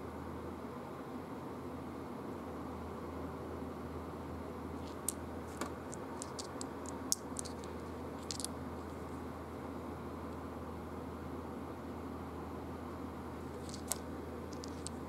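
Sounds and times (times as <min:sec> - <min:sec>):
game discs clicking together: 0:04.9 - 0:08.5, 0:13.6 - 0:14.0, 0:14.6 - 0:15.0.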